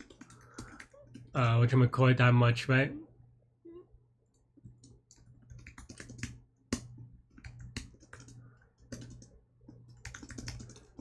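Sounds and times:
keyboard typing: 0:00.0 - 0:01.6, 0:04.3 - 0:11.0
low steady hum: 0:00.0 - 0:11.0.

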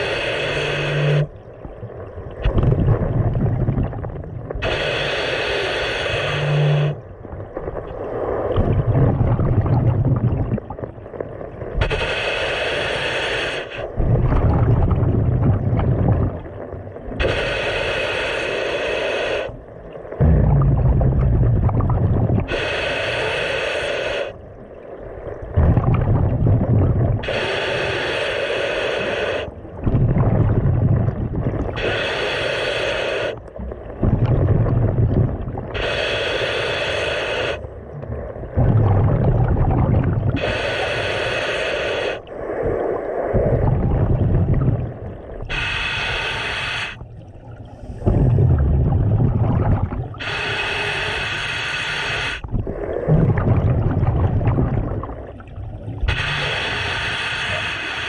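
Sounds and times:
regulator inhale hiss: 0:00.0 - 0:01.3, 0:04.6 - 0:07.0, 0:11.8 - 0:14.0, 0:17.2 - 0:19.7, 0:22.5 - 0:24.4, 0:27.2 - 0:29.7, 0:31.8 - 0:33.7, 0:35.7 - 0:37.7, 0:40.4 - 0:43.6, 0:45.4 - 0:48.2, 0:50.1 - 0:53.0, 0:56.0 - 0:58.0
exhaled bubbles burbling: 0:01.1 - 0:04.7, 0:06.8 - 0:11.9, 0:14.0 - 0:17.2, 0:20.2 - 0:22.6, 0:25.3 - 0:27.4, 0:29.7 - 0:31.8, 0:33.5 - 0:35.8, 0:37.7 - 0:40.6, 0:42.6 - 0:45.7, 0:47.0 - 0:50.4, 0:52.4 - 0:56.5.

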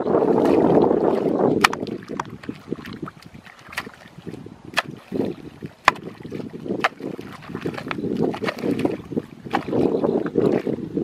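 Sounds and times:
rumble of churned mud and water: 0:00.0 - 0:11.0
hoe chopping into wet mud: 0:01.6 - 0:02.4, 0:04.7 - 0:08.9.

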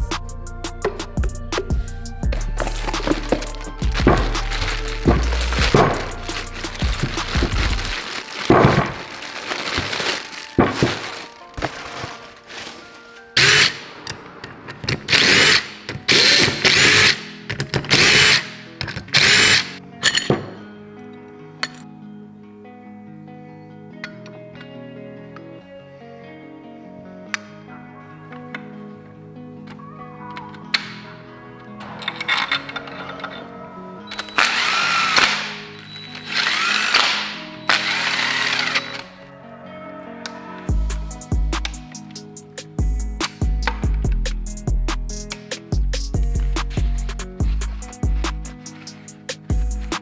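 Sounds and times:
background music: 0:00.0 - 0:50.0
impact driver bursts: 0:13.4 - 0:13.8, 0:15.1 - 0:17.3, 0:17.9 - 0:19.8, 0:34.1 - 0:39.1
cordless drill motor whine: 0:19.2 - 0:19.7, 0:34.1 - 0:39.1.

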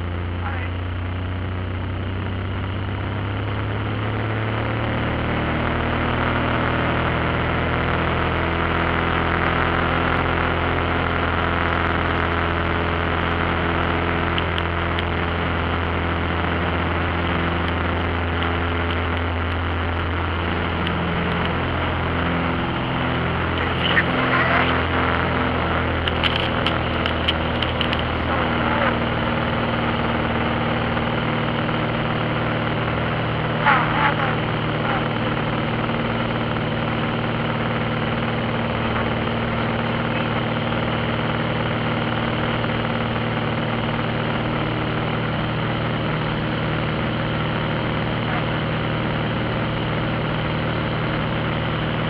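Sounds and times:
propeller aircraft engine in cabin: 0:00.0 - 0:52.0
sharp clicks: 0:25.9 - 0:28.2.

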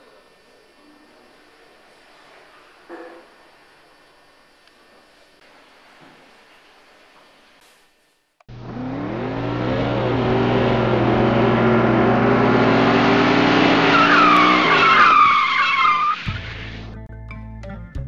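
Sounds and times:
car engine revving: 0:08.5 - 0:16.9
tyres squealing: 0:11.2 - 0:16.5.

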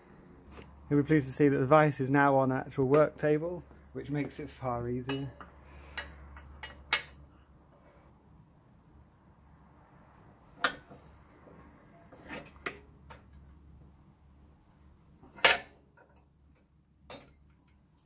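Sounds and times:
metal vise clanks and clicks: 0:05.1 - 0:07.2, 0:15.3 - 0:15.8.

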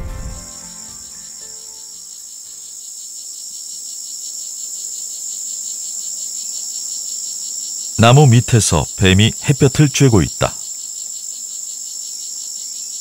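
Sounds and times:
soft music notes: 0:00.0 - 0:02.1
jungle insects trilling: 0:00.4 - 0:13.0.

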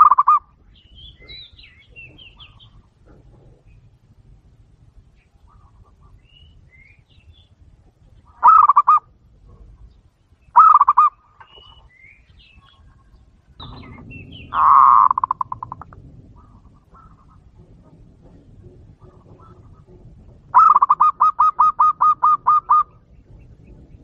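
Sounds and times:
dove cooing: 0:00.0 - 0:00.5, 0:08.3 - 0:09.8, 0:10.6 - 0:11.8, 0:12.8 - 0:23.9
small birds chirping: 0:00.0 - 0:24.0.

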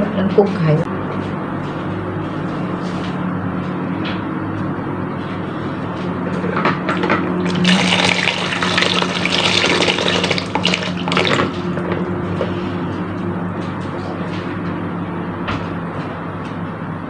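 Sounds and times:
water pouring into container: 0:07.4 - 0:11.6.

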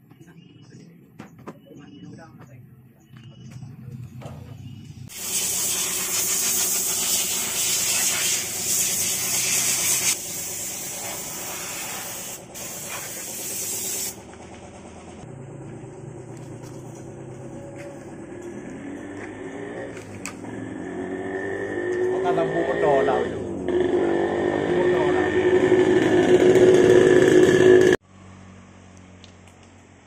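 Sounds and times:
loud steady hiss: 0:05.1 - 0:14.2
low hum: 0:13.4 - 0:21.2.

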